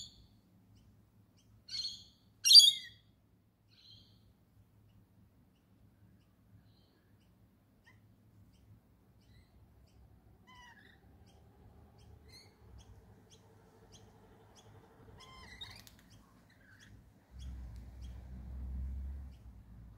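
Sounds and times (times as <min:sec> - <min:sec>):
lorikeet screeches: 0:01.7 - 0:03.0, 0:15.2 - 0:15.9.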